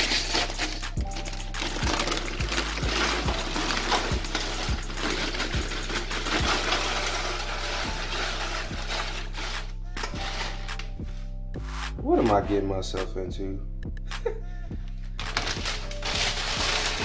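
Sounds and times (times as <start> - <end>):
tortilla chips pouring out: 0.0 - 10.6, 15.2 - 17.0
background music with bass beat: 0.0 - 17.0.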